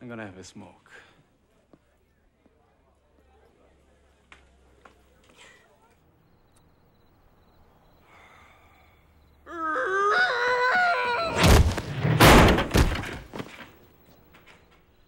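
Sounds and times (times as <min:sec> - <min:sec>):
body crashing onto pavement: 0:11.3 - 0:13.8.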